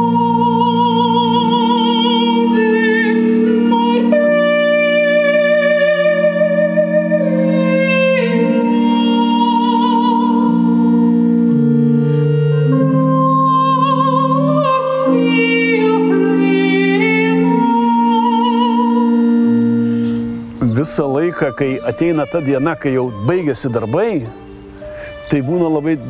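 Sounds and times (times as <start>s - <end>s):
woman singing operatically: 0.0s - 11.4s, 12.7s - 19.4s, 20.6s - 26.0s
pipe organ chords: 0.0s - 26.0s.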